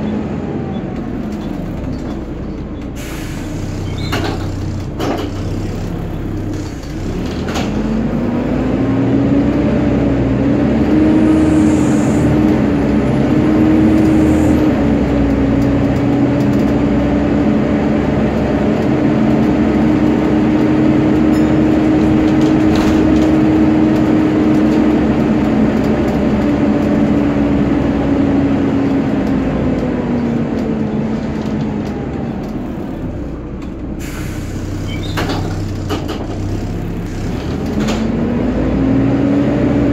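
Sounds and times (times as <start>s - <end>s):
bus engine rumble: 0.0s - 39.9s
engine cooling fan whine: 0.0s - 39.9s
road noise: 0.0s - 39.9s.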